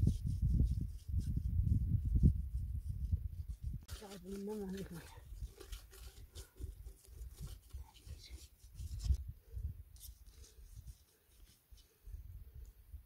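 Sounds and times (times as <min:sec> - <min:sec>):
low wind rumble on microphone: 0:00.0 - 0:03.9, 0:07.2 - 0:11.0
hands scraping mud on metal pot: 0:00.0 - 0:09.2.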